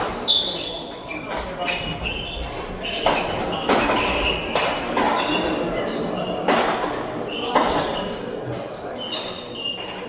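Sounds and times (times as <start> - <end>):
shoes squeaking on floor: 0.0 - 10.0
racket striking shuttlecock: 6.5 - 7.8.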